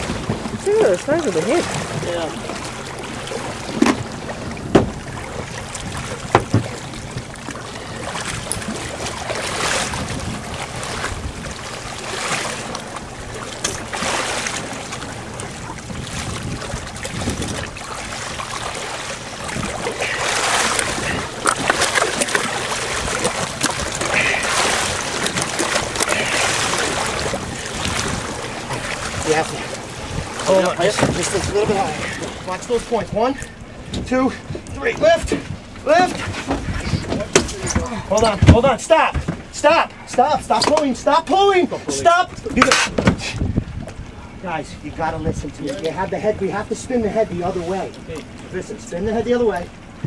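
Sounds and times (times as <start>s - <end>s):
water splashing against boat hull: 0.0s - 50.0s
wind on microphone: 3.7s - 11.8s, 15.0s - 18.6s, 19.3s - 21.8s, 22.4s - 32.4s, 33.8s - 38.4s, 42.4s - 44.4s
sharp knocks: 4.7s - 5.0s, 6.3s - 6.7s.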